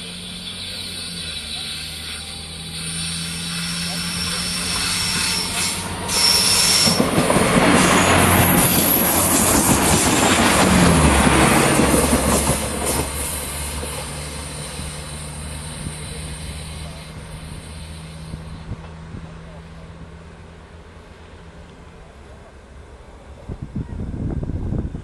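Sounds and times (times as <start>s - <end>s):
high wheel squeal: 0.0s - 9.6s
diesel train passing close: 0.0s - 25.0s
rail clatter: 3.7s - 15.6s
low engine hum: 13.6s - 25.0s.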